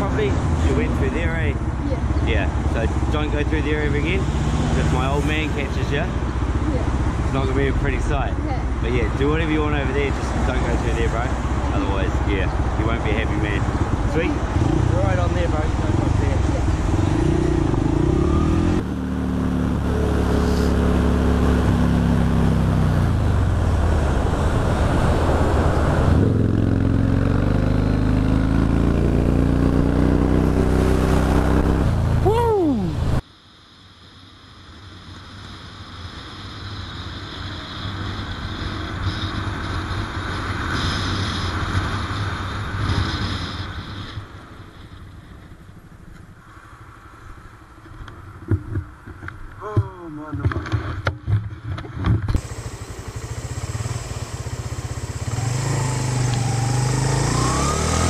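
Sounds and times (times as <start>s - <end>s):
motorcycle engine: 0.0s - 33.2s, 52.4s - 58.0s
wind and road noise: 0.0s - 58.0s.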